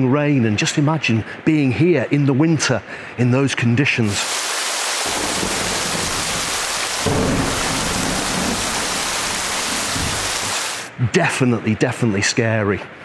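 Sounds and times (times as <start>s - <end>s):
heavy rain hissing: 4.0s - 11.0s
thunder rumbling: 5.1s - 10.8s.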